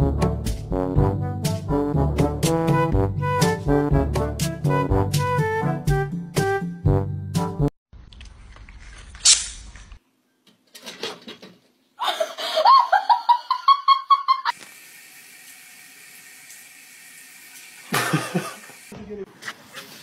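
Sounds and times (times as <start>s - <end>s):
faucet running into sink: 14.5s - 18.9s.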